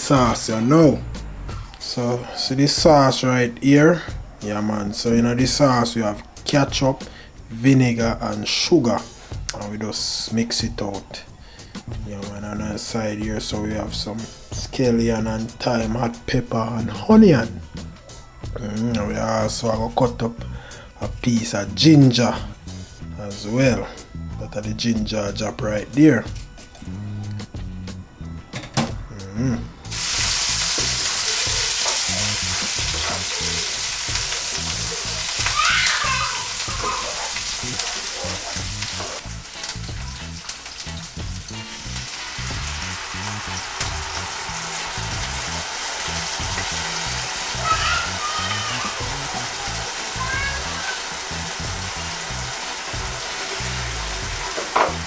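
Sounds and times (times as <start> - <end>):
vegetables sizzling in oil: 29.8 - 55.0.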